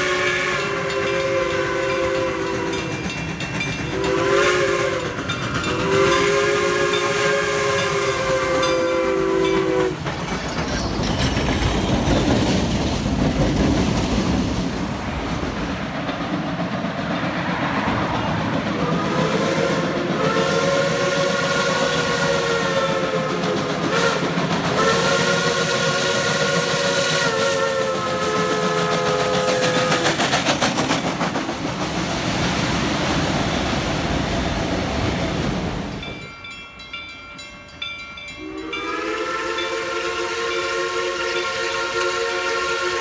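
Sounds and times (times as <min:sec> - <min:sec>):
steam locomotive chime whistle: 0:00.0 - 0:10.1, 0:18.8 - 0:30.2, 0:35.8 - 0:43.0
rumble of passing train: 0:00.0 - 0:43.0.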